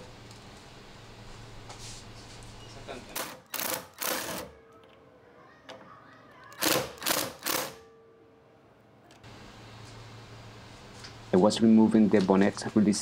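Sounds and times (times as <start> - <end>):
cordless ratchet wrench whirring: 6.6 - 7.8.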